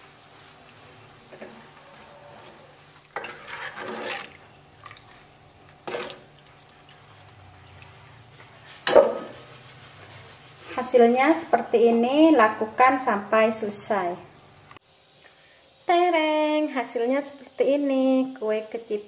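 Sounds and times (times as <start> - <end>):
metal scraping against a wok: 1.3 - 4.5, 7.6 - 11.6.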